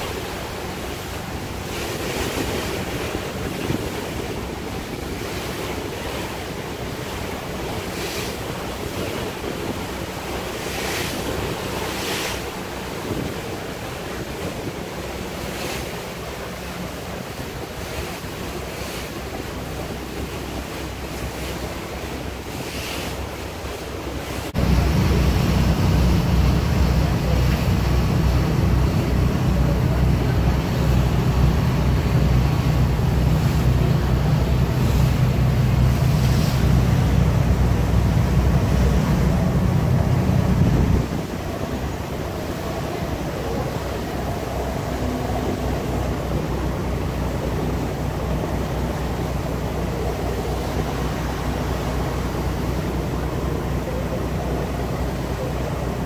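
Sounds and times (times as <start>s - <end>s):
churning water: 0.0s - 56.0s
wind: 0.0s - 56.0s
wind buffeting microphone: 23.2s - 56.0s.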